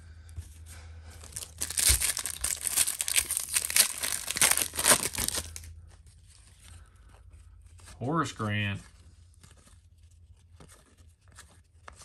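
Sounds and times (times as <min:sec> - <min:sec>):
foil wrapper crinkling and tearing: 0:01.2 - 0:05.7.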